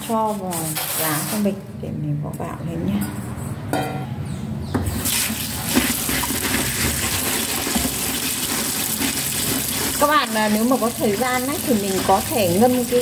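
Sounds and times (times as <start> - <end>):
tap water running: 5.0 - 13.0.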